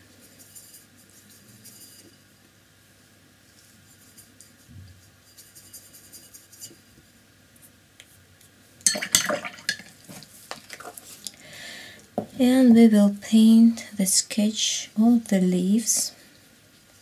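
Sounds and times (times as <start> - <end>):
paintbrush stirring water: 3.5 - 6.9, 8.9 - 11.3.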